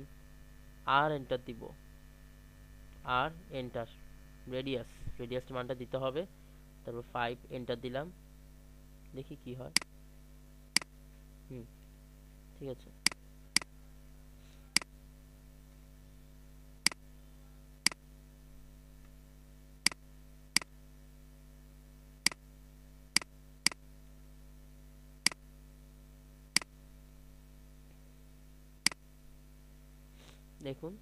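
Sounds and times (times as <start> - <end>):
faint electrical hum: 0.0 - 31.0.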